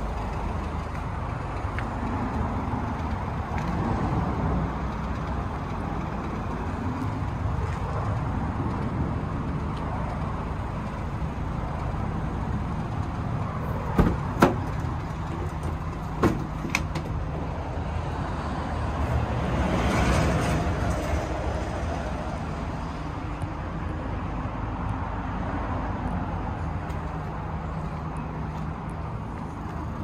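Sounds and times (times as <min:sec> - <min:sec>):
outdoor rumble: 0:00.0 - 0:25.2
door latch clicks and clunks: 0:13.8 - 0:17.3.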